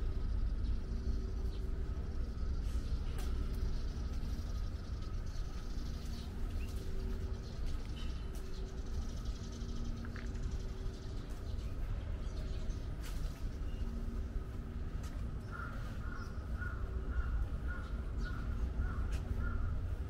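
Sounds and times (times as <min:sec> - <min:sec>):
low steady rumble: 0:00.0 - 0:20.0
crow cawing: 0:15.4 - 0:19.8.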